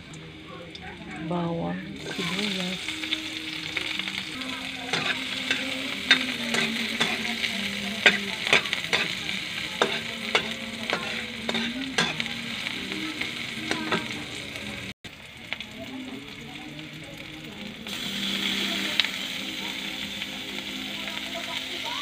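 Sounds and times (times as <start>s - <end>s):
garlic and onion sizzling in oil: 0.0s - 22.0s
metal spatula scraping pan: 4.9s - 12.3s.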